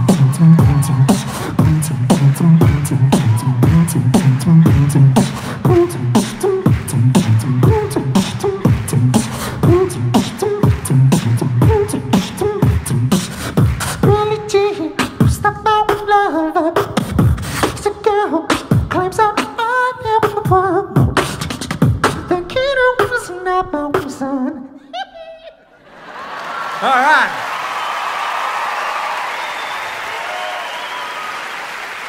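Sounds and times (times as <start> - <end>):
person beatboxing: 0.0 - 24.6
vocal glides: 0.0 - 25.5.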